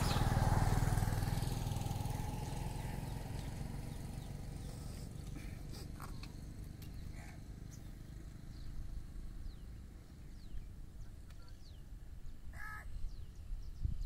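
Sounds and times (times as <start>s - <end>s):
small birds chirping: 0.0s - 14.0s
crow cawing: 12.5s - 12.9s.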